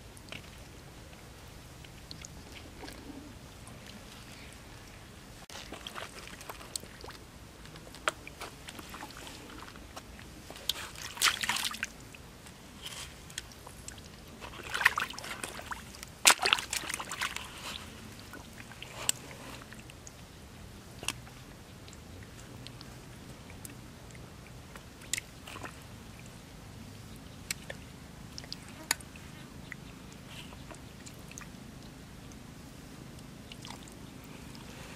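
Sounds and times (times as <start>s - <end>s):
water splashing: 8.0s - 12.2s, 13.1s - 19.9s
hands sloshing in muddy water: 10.6s - 11.9s, 14.4s - 19.9s.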